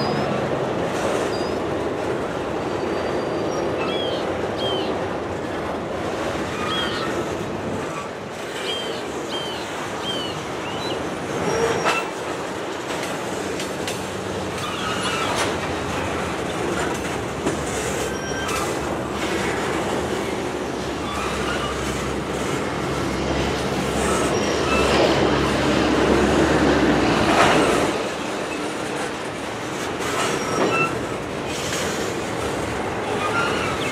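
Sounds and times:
steel wheels rumbling on track: 0.0 - 33.9
short high wheel squeals: 1.2 - 1.6, 6.5 - 7.2, 14.6 - 15.5, 17.9 - 18.8, 21.0 - 22.0, 24.0 - 25.0, 30.2 - 31.0, 33.1 - 33.9.

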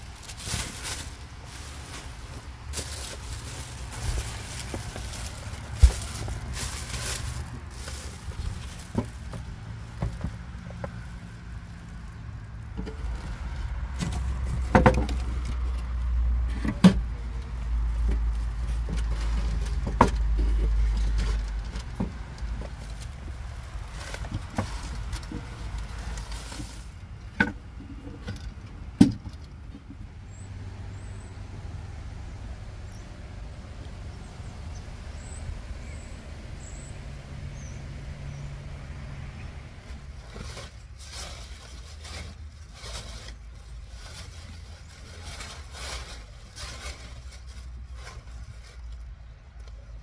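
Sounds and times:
plastic bags rustling: 0.0 - 16.0, 17.5 - 27.0, 39.9 - 49.2
items knocking and clattering: 14.0 - 15.6.

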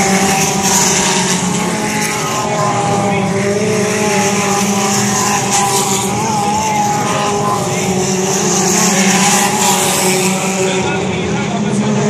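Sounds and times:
race car engines roaring: 0.0 - 12.0.

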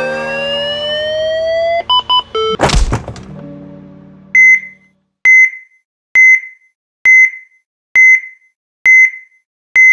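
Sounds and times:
heart monitor beeping: 4.4 - 9.9.

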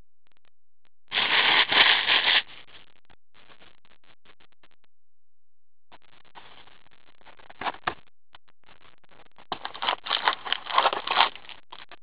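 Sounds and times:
cardboard box and paper rustling: 1.2 - 2.4, 9.6 - 11.6.

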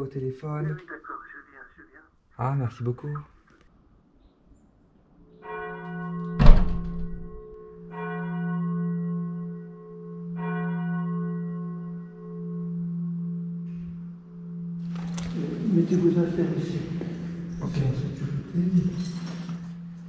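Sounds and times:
heavy wooden door slamming: 6.3 - 7.4
bell-like tones ringing: 7.2 - 20.0.

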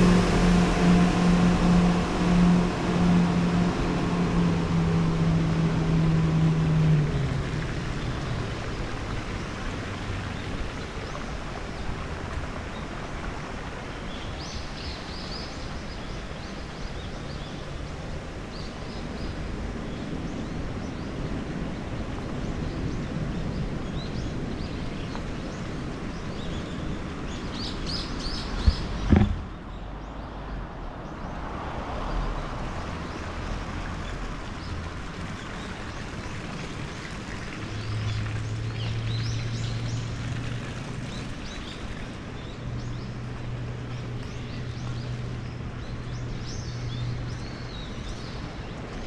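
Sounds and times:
low steady hum: 0.0 - 14.4
city traffic: 0.0 - 17.0, 27.0 - 49.0
sharp knocks: 28.6 - 29.5.

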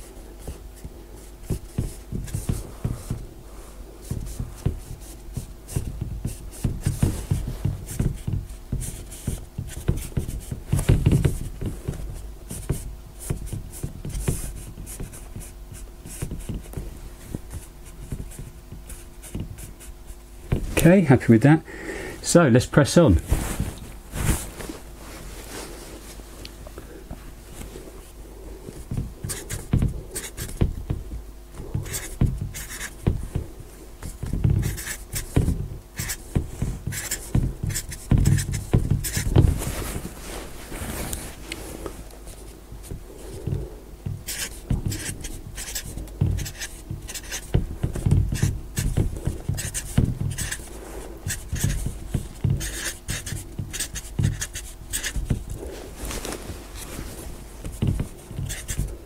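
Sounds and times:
marker pen writing on board: 0.0 - 3.2, 4.0 - 20.6, 28.6 - 39.8, 42.3 - 55.8, 57.6 - 59.0.

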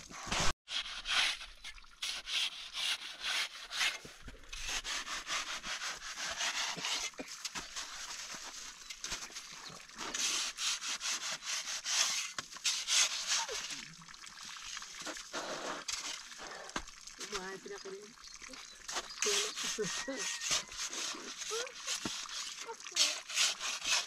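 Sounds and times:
hand pick digging icy snow: 0.4 - 9.2, 10.0 - 13.7, 18.9 - 24.0.

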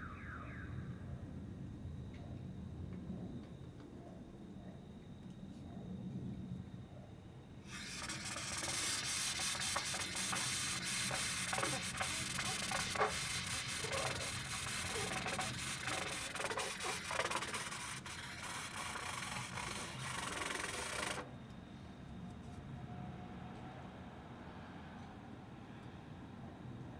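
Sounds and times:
trumpet hiss: 7.7 - 21.2
trumpet squeaking slides: 7.7 - 21.2.

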